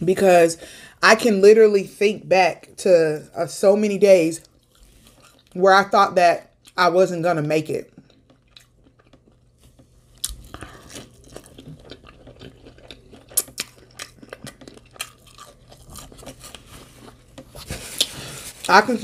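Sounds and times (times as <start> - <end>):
person chewing food: 4.4 - 5.6, 7.9 - 18.7.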